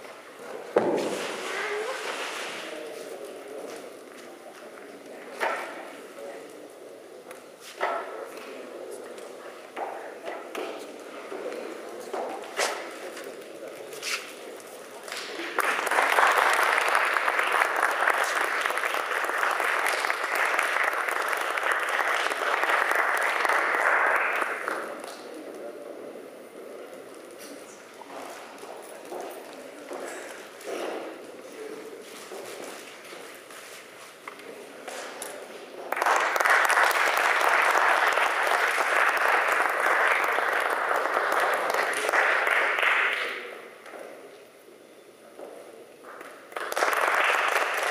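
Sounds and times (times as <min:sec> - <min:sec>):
audience applauding: 0:15.0 - 0:25.2, 0:35.9 - 0:43.5, 0:46.3 - 0:47.9.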